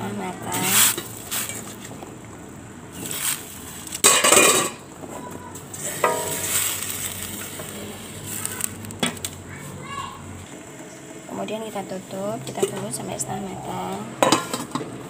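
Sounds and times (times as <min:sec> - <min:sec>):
cookware clattering: 0:04.0 - 0:04.8, 0:05.7 - 0:06.8, 0:14.2 - 0:15.0.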